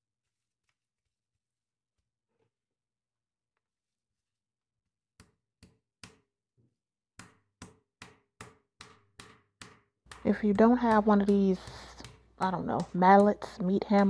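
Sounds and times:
meat mallet pounding on board: 0:07.2 - 0:14.0.

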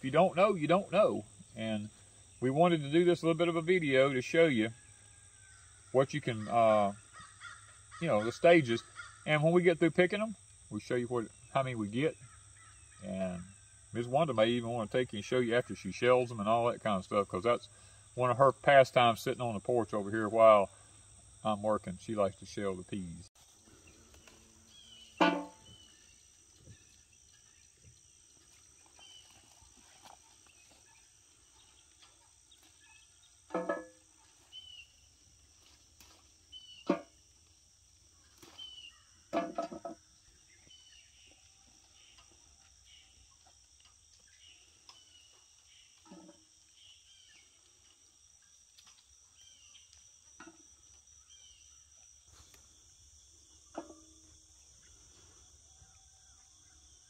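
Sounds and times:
crickets and insects chirping: 0:00.0 - 0:57.0
pea pods clanking into metal pail: 0:25.2 - 0:25.8, 0:33.5 - 0:34.0.

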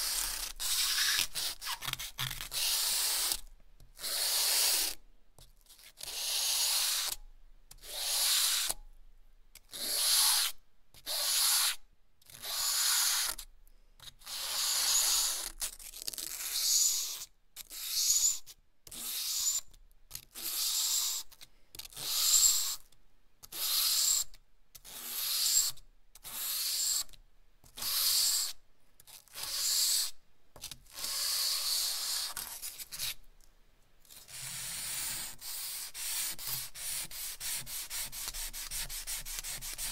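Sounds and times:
charcoal scratching on paper: 0:00.0 - 0:08.8, 0:09.7 - 0:13.4, 0:14.1 - 0:21.2, 0:27.6 - 0:33.2, 0:34.1 - 0:39.9.

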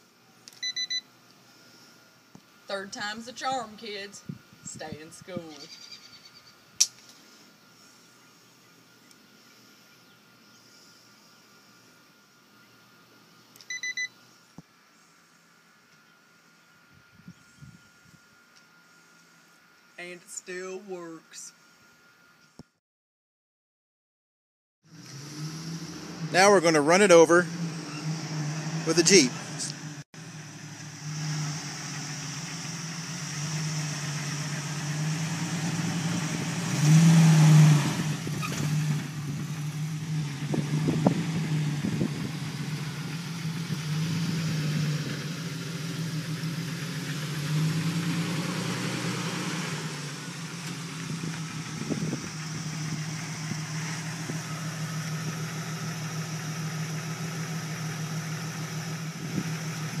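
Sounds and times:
car engine idling and pulling away: 0:24.8 - 1:00.0.

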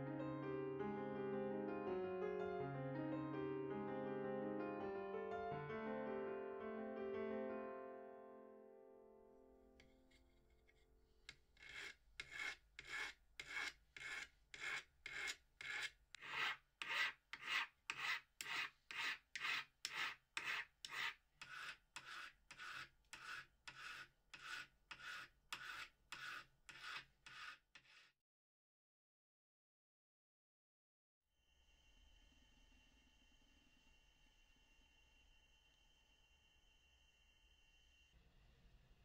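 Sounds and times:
hand file rasping on metal: 0:09.8 - 0:28.1.

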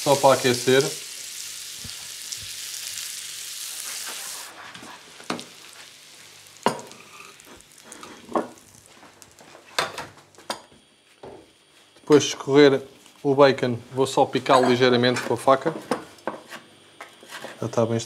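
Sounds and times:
butter sizzling in frying pan: 0:00.0 - 0:10.6.

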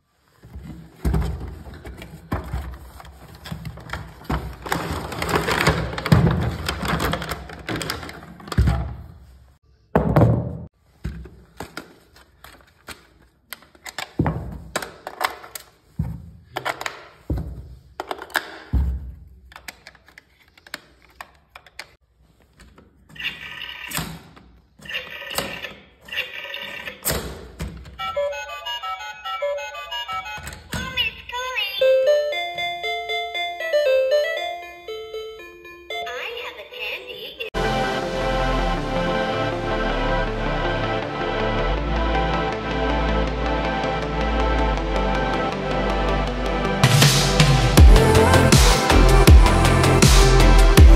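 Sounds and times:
packaging rustling: 0:00.2 - 0:08.5
toy electronic tones: 0:28.0 - 0:37.2.

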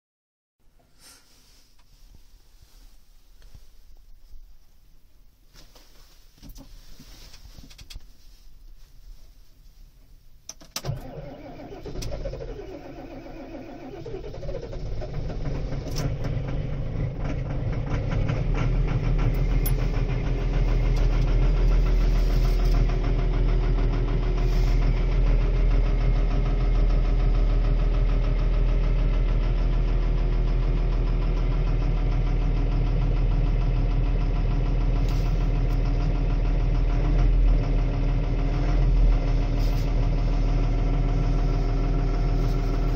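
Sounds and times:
tractor diesel engine starting: 0:10.5 - 0:42.9
diesel engine idling: 0:11.0 - 0:42.9.

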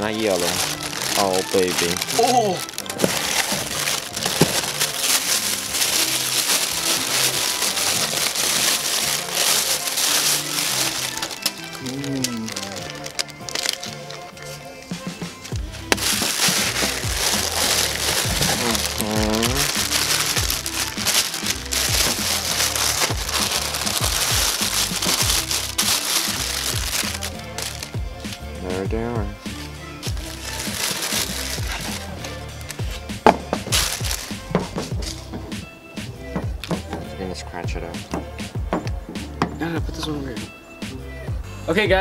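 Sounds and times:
plastic bag crinkling: 0:00.0 - 0:14.6, 0:15.4 - 0:28.0, 0:30.0 - 0:35.2
background music with bass line: 0:00.0 - 0:42.0.

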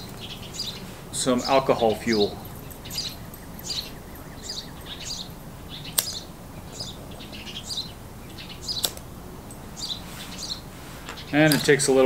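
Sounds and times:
small birds chirping: 0:00.0 - 0:12.0
sharp clicks: 0:05.9 - 0:06.3, 0:08.7 - 0:09.1.

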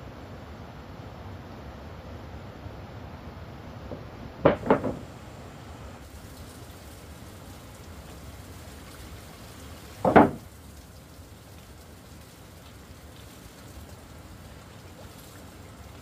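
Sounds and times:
steady hiss: 0:00.0 - 0:16.0
quick knocks: 0:03.9 - 0:05.1, 0:10.0 - 0:10.4.

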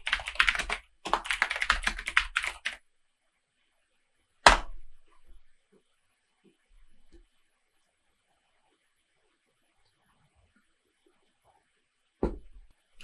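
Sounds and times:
keyboard typing: 0:00.0 - 0:02.8.

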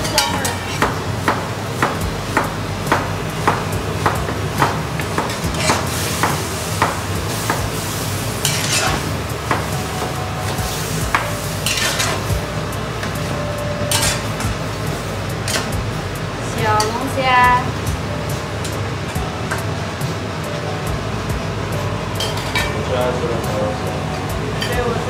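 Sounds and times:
frying in hot oil: 0:00.0 - 0:25.0
metal spatula scraping a wok: 0:05.3 - 0:09.2, 0:10.4 - 0:12.3, 0:13.9 - 0:14.4.

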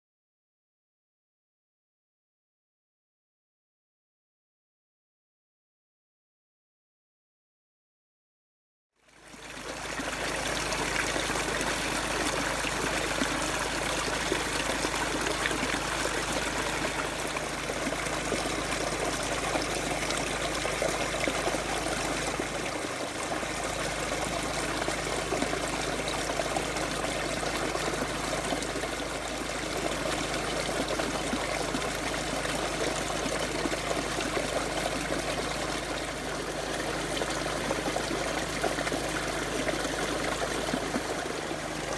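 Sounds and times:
water trickling over weir: 0:09.1 - 0:41.9.

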